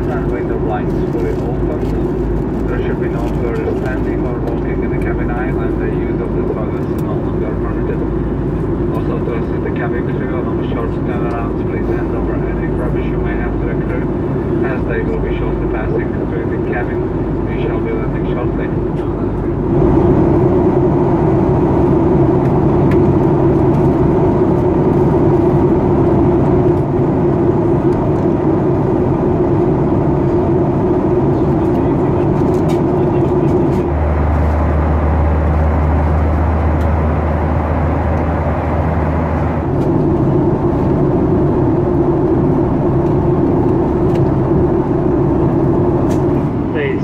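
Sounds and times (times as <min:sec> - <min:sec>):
airplane cabin engine noise: 0:00.0 - 0:47.0
deeper hum: 0:00.0 - 0:47.0.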